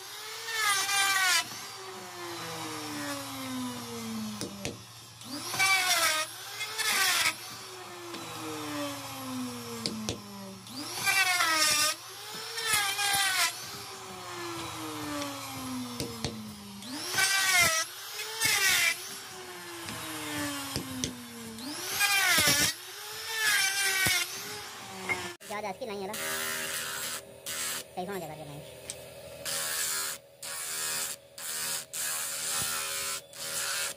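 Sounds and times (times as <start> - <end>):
electric grinder motor running: 0.0 - 28.0, 28.6 - 33.9.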